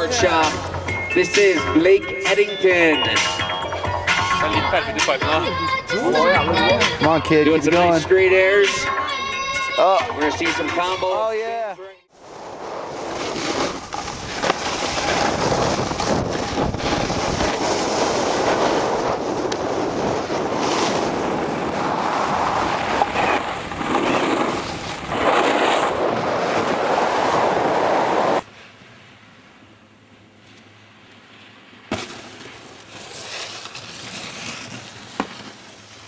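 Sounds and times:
wind buffeting microphone: 14.0 - 28.4.

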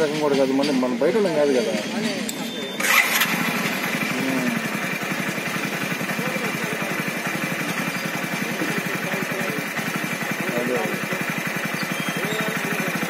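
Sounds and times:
engine idling: 2.8 - 13.0.

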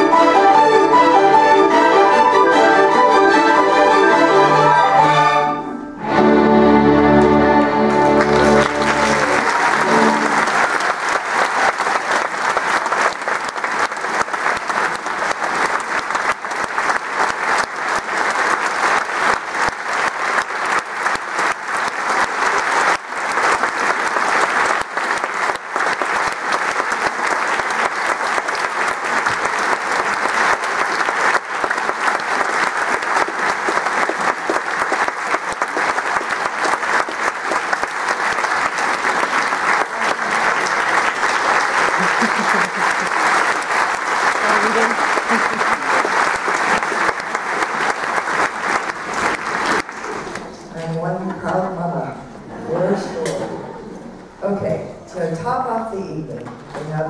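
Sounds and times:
string orchestra chord: 0.0 - 10.6
audience applauding: 6.7 - 50.9.

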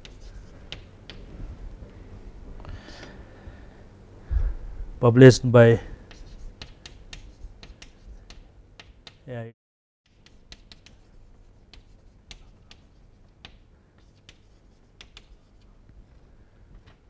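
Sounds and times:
chalk tapping and scraping on blackboard: 0.0 - 1.3, 6.0 - 9.2, 10.1 - 15.7.

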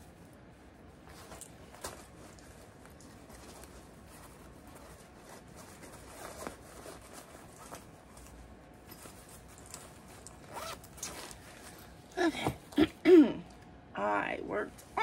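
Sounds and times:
faint rustling and handling: 0.0 - 12.9
zipper being pulled: 9.6 - 11.9.

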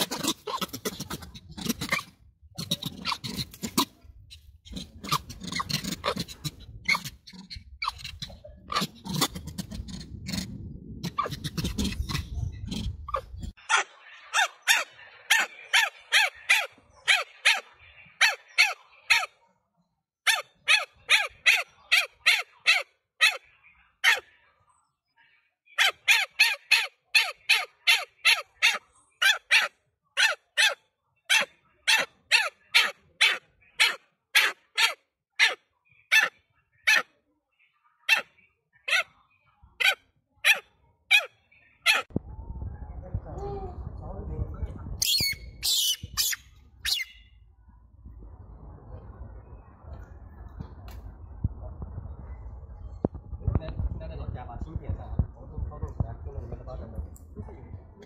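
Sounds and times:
macaque giving sharp high calls: 20.3 - 23.4, 25.8 - 36.3, 39.8 - 42.1, 45.0 - 47.2.

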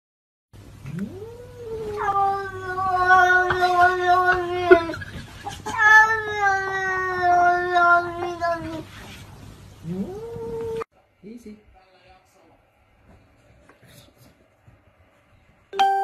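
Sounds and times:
cat yowling: 1.0 - 8.9.

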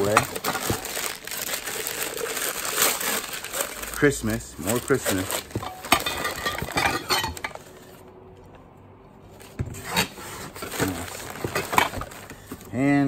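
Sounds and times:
newspaper rustling: 0.0 - 8.0, 9.3 - 13.0
dishes knocking and clinking: 5.5 - 7.6.

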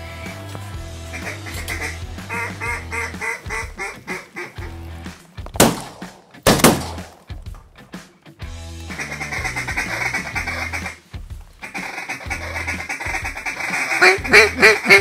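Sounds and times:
background music: 0.0 - 15.0
mallard quacks: 1.1 - 4.8, 8.9 - 11.0, 11.6 - 15.0
shotgun shots with echo: 5.6 - 7.3.

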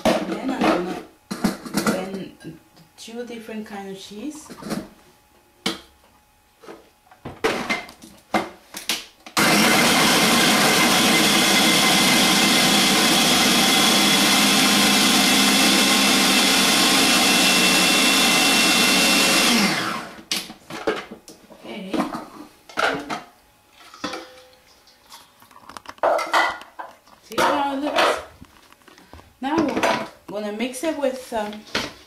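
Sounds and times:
food processor motor running: 9.4 - 20.3.

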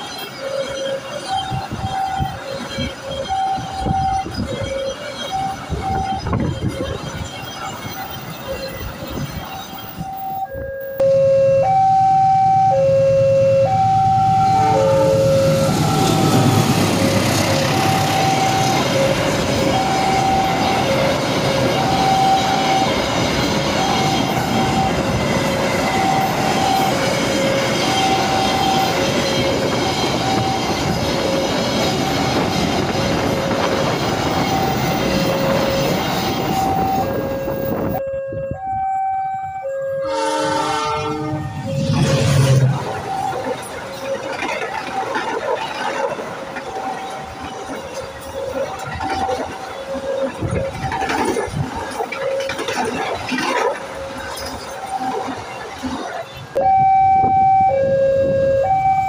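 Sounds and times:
freight train rumbling on rails: 0.0 - 11.0, 11.7 - 59.0
level crossing alarm two-note tone: 9.9 - 30.9, 34.4 - 43.4, 56.6 - 59.0.

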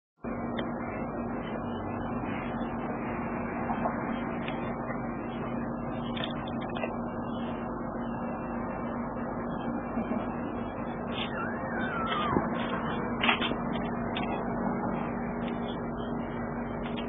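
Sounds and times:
machine hum: 0.2 - 17.0.

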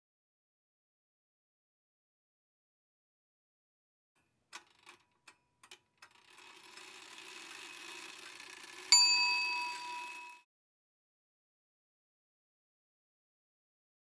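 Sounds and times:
bright bell strike: 8.9 - 10.4.

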